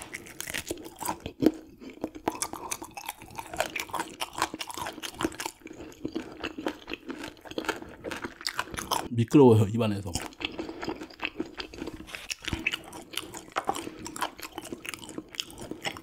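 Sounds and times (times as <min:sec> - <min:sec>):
chewing with crisp crunches: 0:00.0 - 0:09.1, 0:09.8 - 0:16.0.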